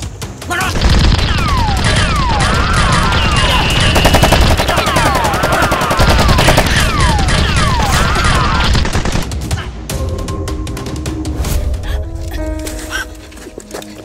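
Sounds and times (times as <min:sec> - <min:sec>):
automatic gunfire volleys: 0:00.9 - 0:08.0
falling whistles: 0:02.9 - 0:04.5.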